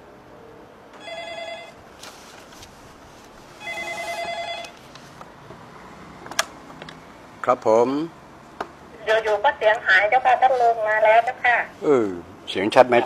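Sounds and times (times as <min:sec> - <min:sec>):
telephone ringing: 0:01.0 - 0:01.8, 0:03.6 - 0:04.8.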